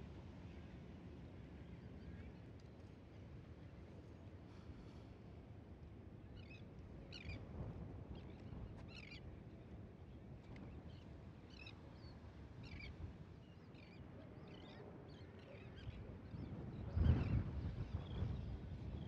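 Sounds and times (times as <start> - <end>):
low rumble of wind: 3.0 - 19.0.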